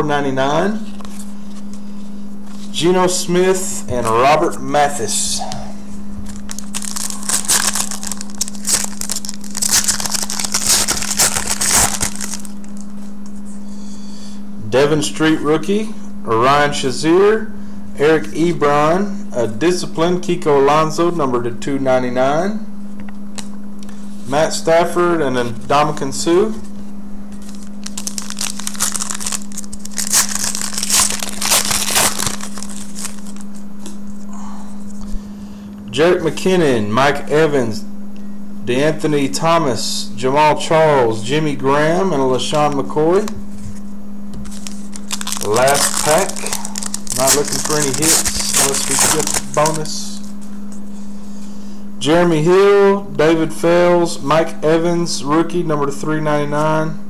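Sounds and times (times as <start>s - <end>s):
foil wrapper crinkling: 6.3s - 12.9s, 27.4s - 33.6s, 44.4s - 50.5s.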